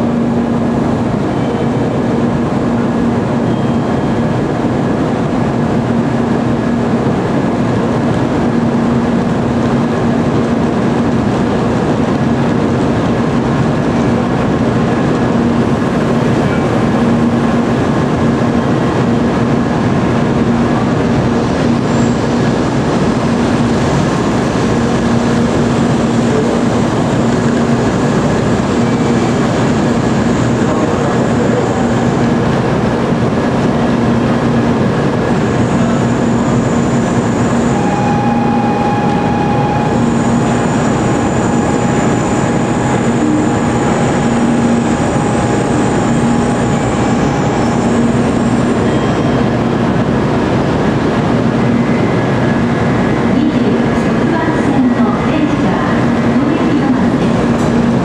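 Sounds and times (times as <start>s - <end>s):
train wheels rumbling: 0.0s - 58.0s
low hum: 32.6s - 53.8s.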